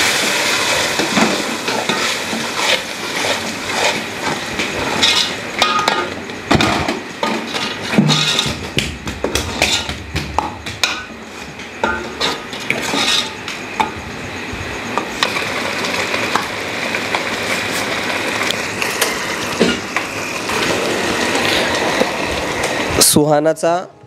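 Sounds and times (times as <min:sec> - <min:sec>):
masala sizzling in oil: 0:00.0 - 0:23.2
steel ladle scraping a pot: 0:01.7 - 0:05.4, 0:07.2 - 0:08.5, 0:11.9 - 0:13.4.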